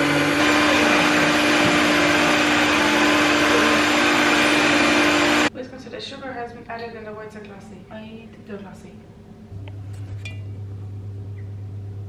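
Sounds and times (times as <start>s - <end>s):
stand mixer motor humming: 0.0s - 5.5s.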